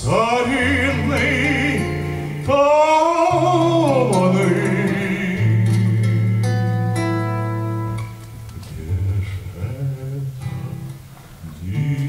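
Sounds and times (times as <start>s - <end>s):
man singing with vibrato: 0.0s - 7.6s, 8.6s - 12.0s
acoustic guitar: 0.0s - 12.0s.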